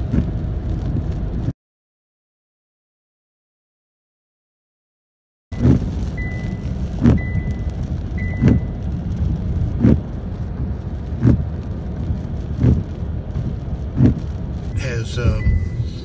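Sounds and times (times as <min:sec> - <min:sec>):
car interior rumble in rain: 0:00.0 - 0:01.5, 0:05.5 - 0:16.0
windshield wiper thuds: 0:08.3 - 0:08.7, 0:09.8 - 0:10.1, 0:11.1 - 0:11.5, 0:12.5 - 0:14.3
high beeping chime: 0:14.8 - 0:16.0.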